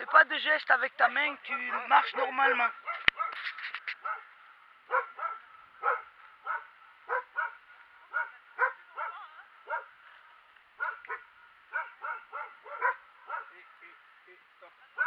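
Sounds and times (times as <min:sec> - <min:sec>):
dog barking: 0:01.7 - 0:03.4, 0:04.0 - 0:04.3, 0:04.9 - 0:09.9, 0:10.8 - 0:13.6.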